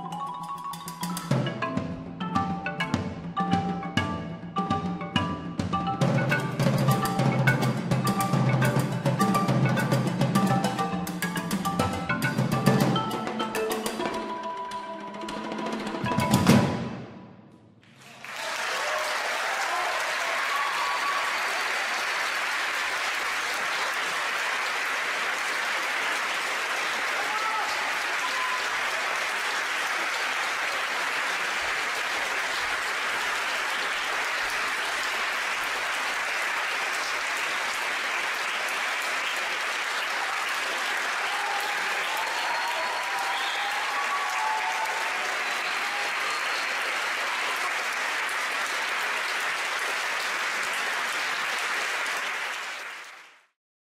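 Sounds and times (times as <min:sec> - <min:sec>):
audience applauding: 0:17.8 - 0:53.6.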